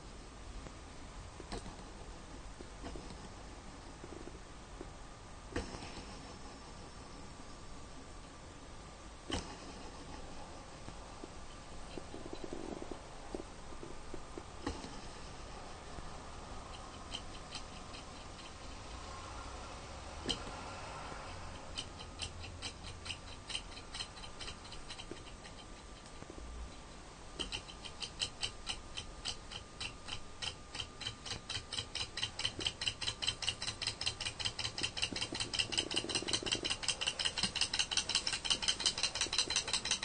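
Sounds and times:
engine model ticking: 21.4s - 26.1s, 27.4s - 40.0s
flywheel flick: 27.4s - 40.0s.

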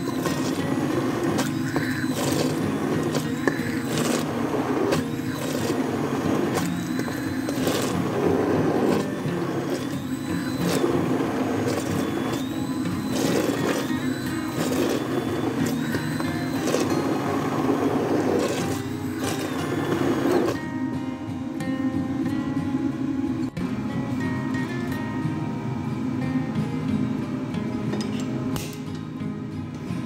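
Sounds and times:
immersion blender motor whine: 0.0s - 20.6s.

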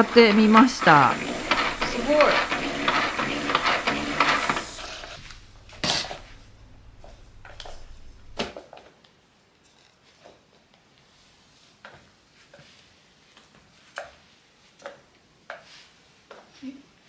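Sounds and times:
mop scraping floor: 0.0s - 8.5s.

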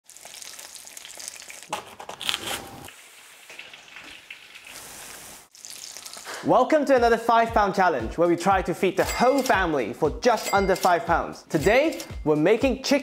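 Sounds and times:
chicken sizzling in oil: 0.0s - 1.7s, 2.7s - 6.4s.

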